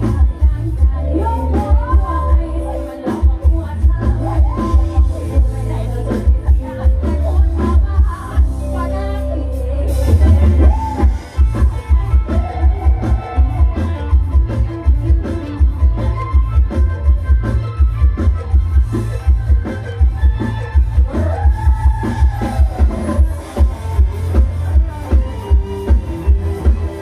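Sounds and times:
bass drum beat: 0:00.0 - 0:08.7, 0:10.0 - 0:27.0
women singing: 0:00.0 - 0:13.7
electric guitars: 0:00.0 - 0:27.0
keyboard: 0:00.0 - 0:27.0.

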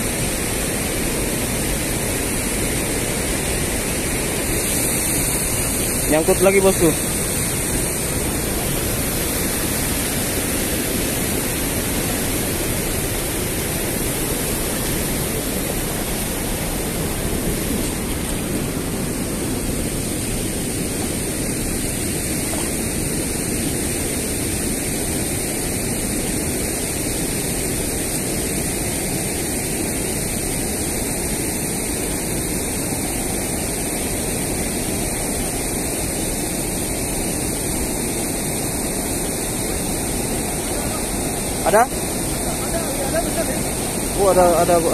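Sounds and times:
river water rushing over weir: 0:00.0 - 0:44.9.

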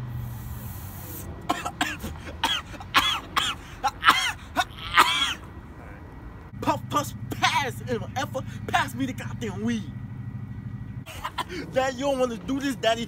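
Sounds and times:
man coughing hard: 0:01.5 - 0:05.5, 0:11.1 - 0:11.8.

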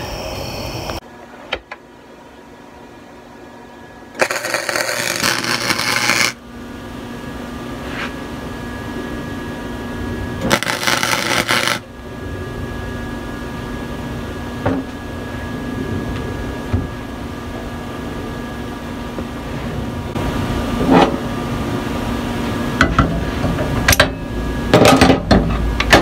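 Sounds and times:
welder low hum: 0:00.0 - 0:26.0
welding crackle: 0:04.2 - 0:06.4, 0:10.4 - 0:11.9.

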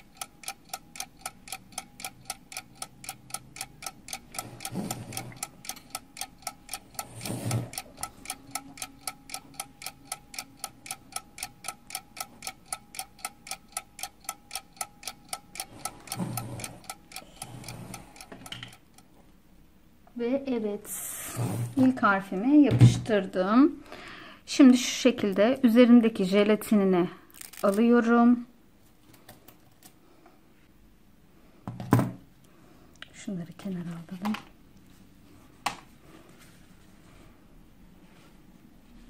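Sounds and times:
clock ticking: 0:00.0 - 0:19.1.

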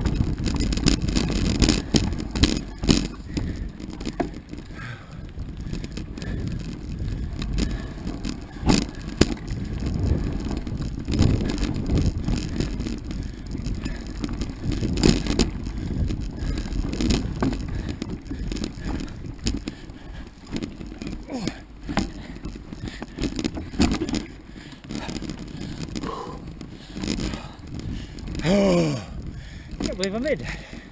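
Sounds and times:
bike knocks and rattles: 0:00.0 - 0:30.9
bike tyres rumbling on dirt: 0:00.0 - 0:30.9.

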